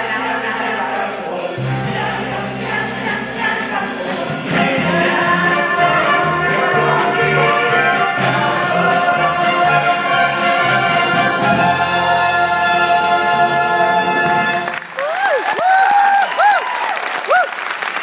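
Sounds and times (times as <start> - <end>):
steady drum beat: 0.0 - 14.4
chorus singing: 0.0 - 14.8
brass band playing: 0.0 - 15.0.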